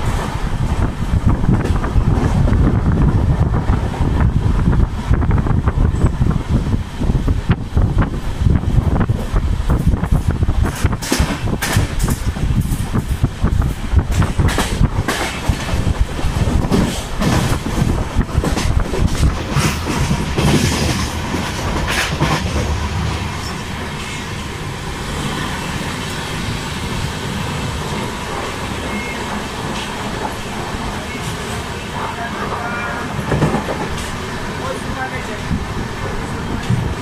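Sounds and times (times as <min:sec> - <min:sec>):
train low rumble: 0:00.0 - 0:37.0
train wheels clacking over joints: 0:09.1 - 0:31.8, 0:32.5 - 0:37.0.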